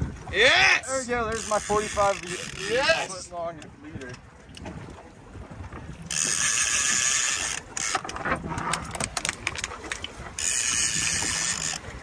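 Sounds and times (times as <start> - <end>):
fishing reel drag buzzing: 1.3 - 3.3, 6.1 - 8.1, 10.4 - 11.9
reel ratchety clicking: 1.3 - 4.2, 6.1 - 12.0.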